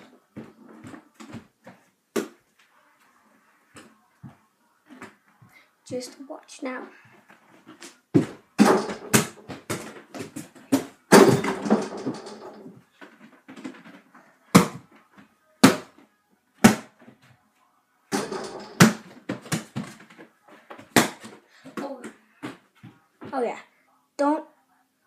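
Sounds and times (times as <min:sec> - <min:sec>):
basketball bouncing on floor: 0:08.2 - 0:12.5, 0:18.2 - 0:20.0
ball hitting hoop: 0:08.2 - 0:12.7, 0:18.2 - 0:19.9.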